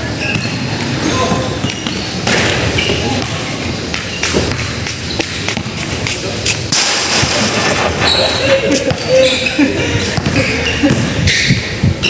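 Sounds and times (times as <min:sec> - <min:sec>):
basketball bouncing on court: 0:01.6 - 0:06.1, 0:08.8 - 0:09.2, 0:10.1 - 0:11.5.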